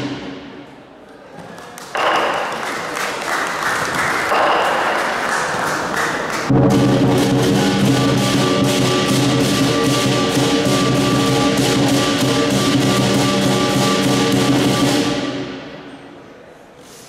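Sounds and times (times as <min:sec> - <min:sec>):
large drum beaten fast: 0:06.5 - 0:15.6
crashing cymbals: 0:06.5 - 0:15.8
loud sustained ringing tone: 0:06.5 - 0:15.8.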